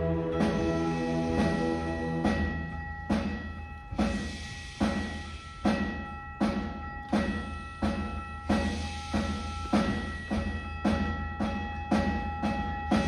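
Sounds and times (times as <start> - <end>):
held string notes: 0.0 - 4.0
timpani strikes: 0.0 - 13.0.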